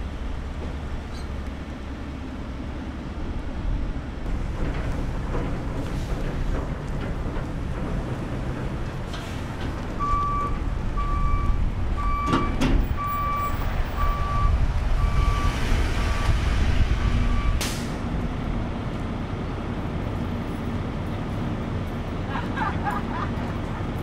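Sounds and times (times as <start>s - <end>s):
heavy engine rumble: 0.0s - 24.0s
truck reversing alarm beeping: 10.0s - 17.6s.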